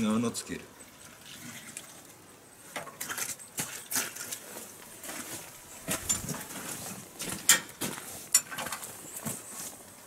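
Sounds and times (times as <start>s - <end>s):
tools clinking on metal: 8.3s - 8.8s.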